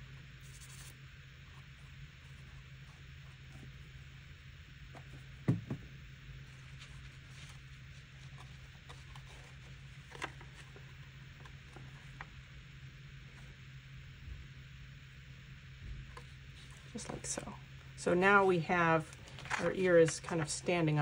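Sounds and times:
low steady hum: 0:00.0 - 0:21.0
paper rustling: 0:19.0 - 0:20.7.

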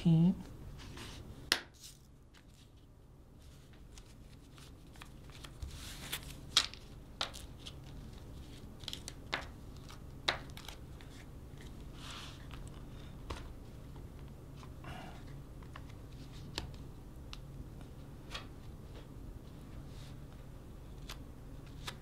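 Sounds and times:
paper banknotes rustling: 0:01.8 - 0:13.6
crisp paper snaps: 0:08.8 - 0:11.7.

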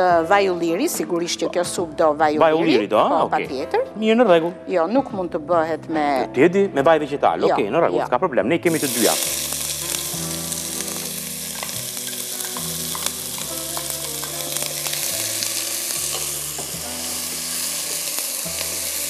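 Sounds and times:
onion sizzling in oil: 0:08.7 - 0:19.0.

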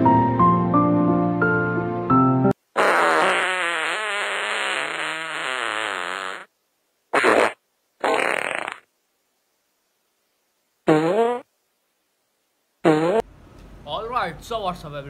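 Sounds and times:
farting: 0:02.8 - 0:06.5, 0:07.1 - 0:08.9, 0:10.9 - 0:11.5, 0:12.8 - 0:13.3.

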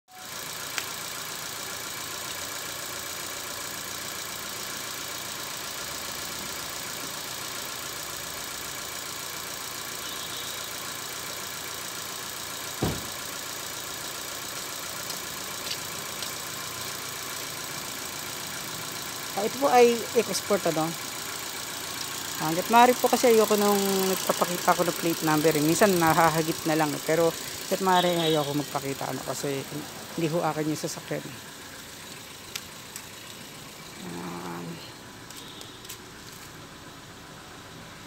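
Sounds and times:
car engine idling: 0:00.1 - 0:38.0
dull thump: 0:12.8 - 0:13.2.

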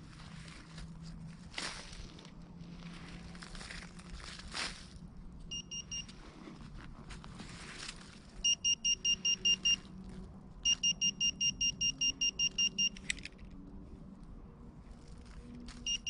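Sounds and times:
metal detector rapid beeping: 0:05.5 - 0:06.2, 0:08.4 - 0:09.8, 0:10.6 - 0:13.0.

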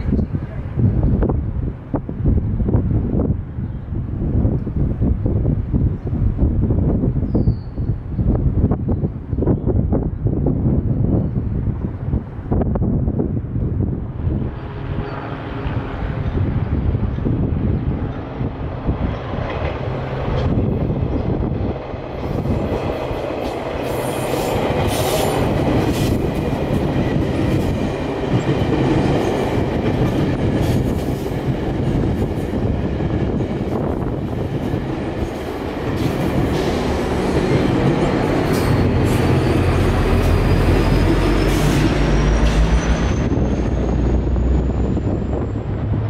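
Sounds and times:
diesel locomotive engine drone: 0:00.0 - 0:46.0
train wheels clicking over rail joints: 0:22.2 - 0:44.4.

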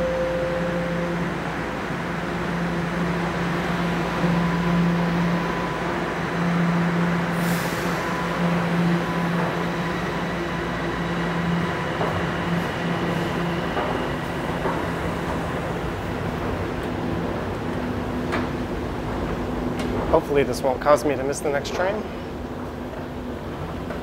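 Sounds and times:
steady tones: 0:00.0 - 0:07.3
machinery hum: 0:00.0 - 0:24.0.

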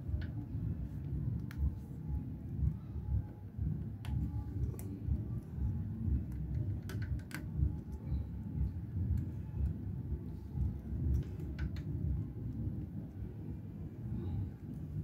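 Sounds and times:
steady low rumble: 0:00.0 - 0:15.0
sharp clicks and taps: 0:06.2 - 0:08.0.

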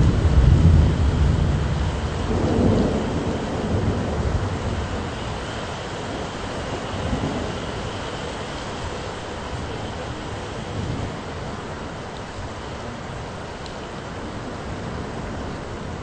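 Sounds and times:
thunder rumbling: 0:00.0 - 0:12.1
steady rain hissing: 0:00.0 - 0:16.0.

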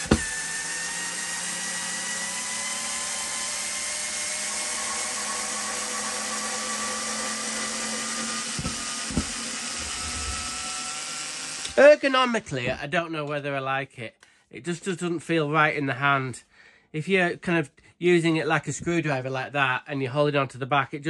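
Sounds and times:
electric screwdriver motor whining: 0:00.0 - 0:11.8.

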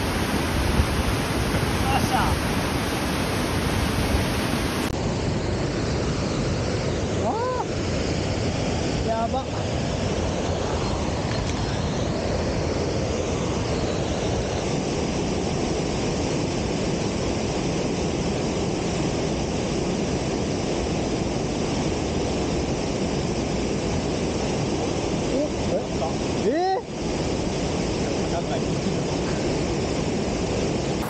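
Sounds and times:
waterfall rushing: 0:00.0 - 0:04.9.

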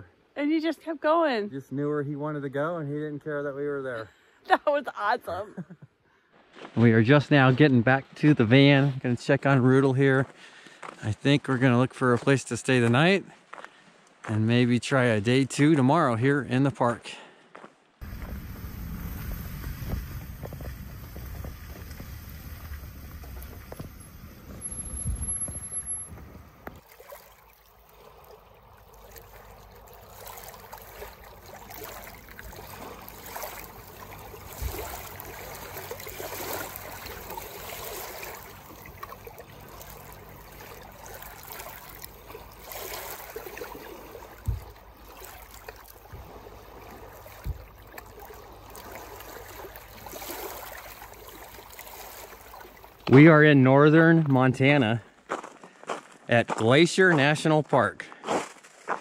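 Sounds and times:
wind rumble on microphone: 0:18.0 - 0:26.8
small waves on pebbly shore: 0:18.0 - 0:53.0.

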